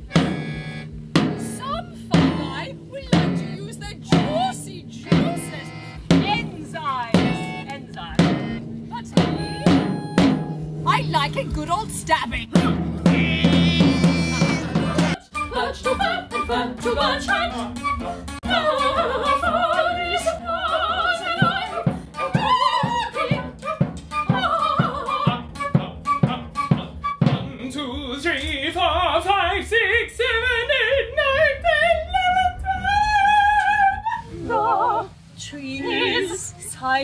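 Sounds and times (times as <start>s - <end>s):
instrumental accompaniment: 0.0s - 29.6s
operatic singing with vibrato: 0.0s - 36.8s
steady low beat: 0.0s - 37.0s.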